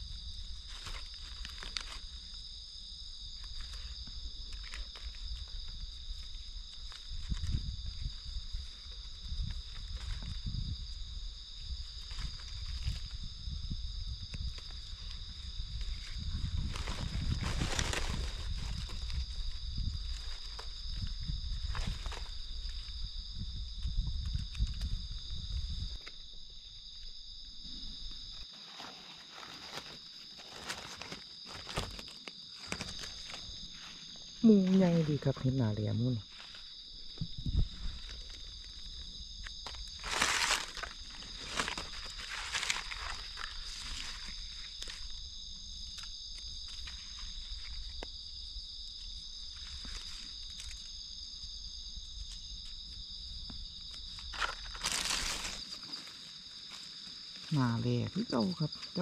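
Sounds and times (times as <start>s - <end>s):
night insects chorus: 0.0s - 59.0s
dry leaves rustling and crackling: 0.2s - 10.8s, 11.6s - 13.4s, 14.4s - 23.1s, 28.3s - 35.4s, 36.2s - 47.8s, 53.8s - 57.9s
knife cutting in leaf litter: 54.3s - 56.1s.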